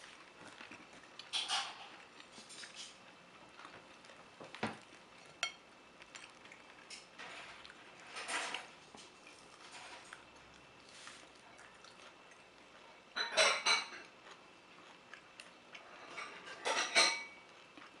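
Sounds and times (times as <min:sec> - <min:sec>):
tableware clattering: 0:13.2 - 0:14.0, 0:16.0 - 0:17.4.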